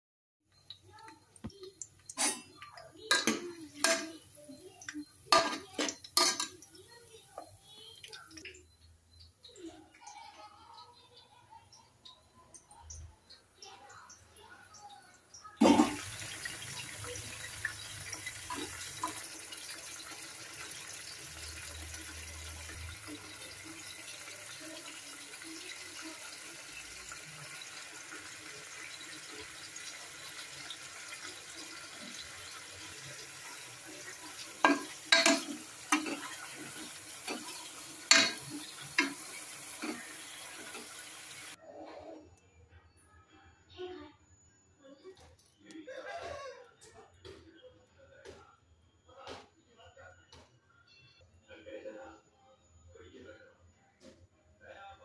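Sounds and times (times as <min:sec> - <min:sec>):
steel spoon knocking on pot: 0:34.6 - 0:36.4, 0:38.1 - 0:39.2.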